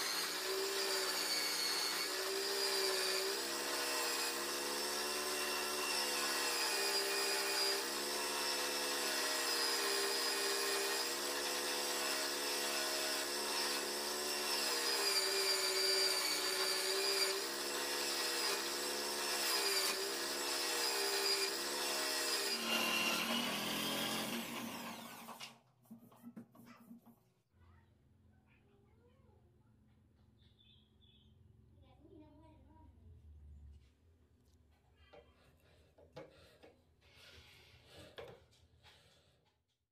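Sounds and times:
electric drill motor whining: 0.0 - 25.5.

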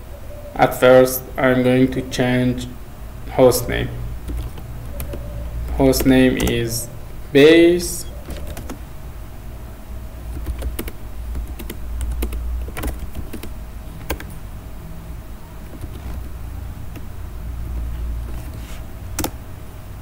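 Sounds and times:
steady low hum: 0.0 - 20.0
keyboard keys clicking: 4.2 - 6.9, 8.2 - 8.8, 10.3 - 14.4, 15.6 - 17.1, 17.7 - 19.4.

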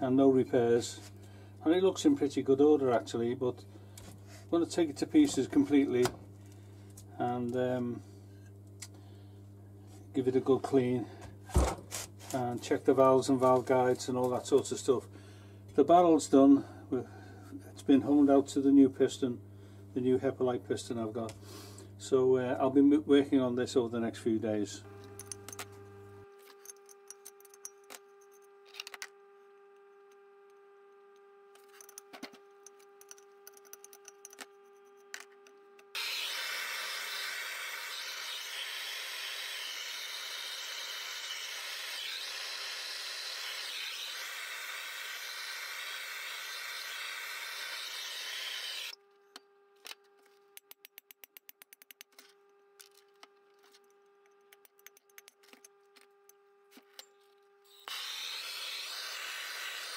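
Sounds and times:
blowtorch hissing: 43.3 - 49.0.

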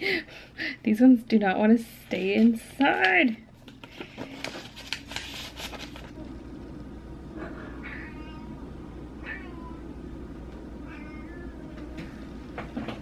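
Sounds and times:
cats meowing: 7.8 - 8.6, 9.2 - 10.0, 10.8 - 12.1.

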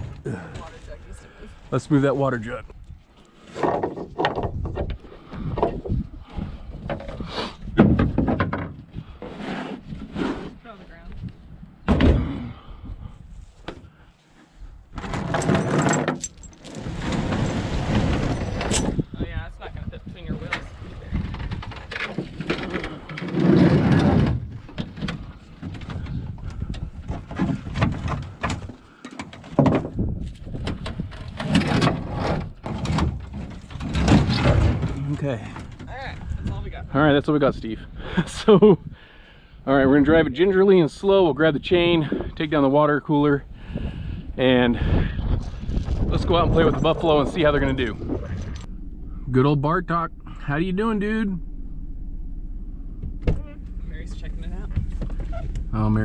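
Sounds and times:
wooden pallets scraping: 3.2 - 10.9, 14.9 - 19.0, 20.4 - 36.4
knocks and rattles: 3.5 - 9.0, 15.0 - 19.1, 20.3 - 36.6, 52.8 - 56.0
plastic water cooler thumping and scraping: 27.0 - 35.0.

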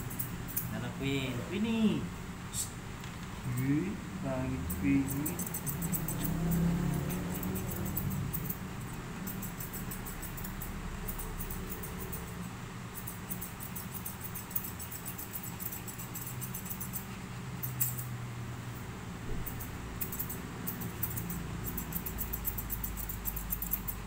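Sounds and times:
faint low hum: 0.0 - 24.0
scissors snipping fur: 0.1 - 0.8, 4.7 - 18.1, 19.3 - 24.0.

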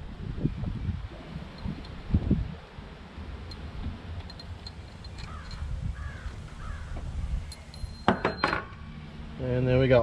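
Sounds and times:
wind rumble on microphone: 0.0 - 2.9, 3.5 - 8.4
crow cawing: 5.3 - 7.0.

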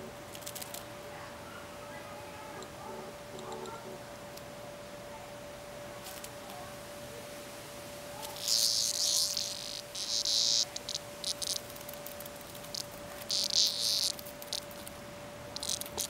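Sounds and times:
cicada buzzing: 0.0 - 1.0, 7.9 - 16.0.

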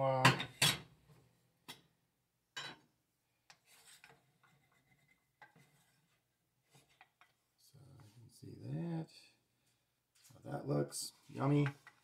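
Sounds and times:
wooden spoon scraping pan: 3.5 - 7.3.

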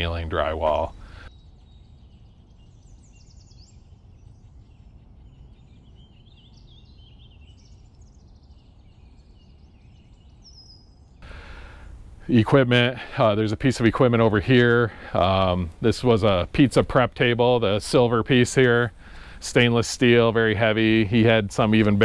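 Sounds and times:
low steady background rumble: 0.0 - 22.0
faint bird chirps: 0.3 - 12.0.

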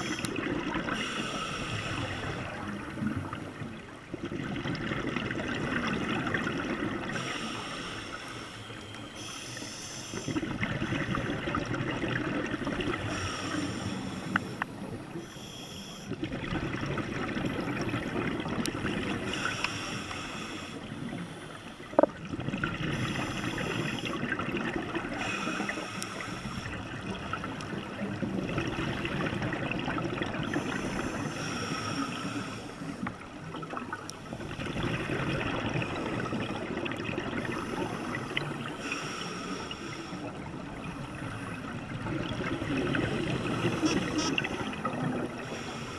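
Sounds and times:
diver inhaling through regulator: 0.9 - 2.7, 7.1 - 10.4, 13.0 - 16.1, 19.2 - 21.5, 25.1 - 26.8, 30.5 - 33.0, 37.4 - 40.3, 45.4 - 45.9
rushing exhaled bubbles: 1.9 - 7.2, 33.5 - 38.8.

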